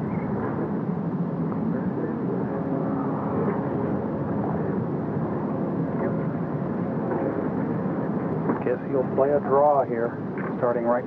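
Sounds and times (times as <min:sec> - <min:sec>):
outdoor background rumble: 0:00.0 - 0:11.0.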